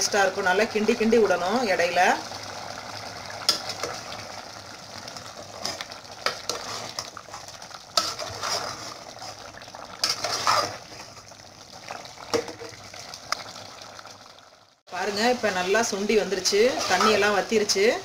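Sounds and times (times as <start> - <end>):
liquid sizzling in a pot: 0.0 - 18.0
metal spoon scraping a pot: 5.6 - 9.4, 10.0 - 11.1, 16.4 - 17.4.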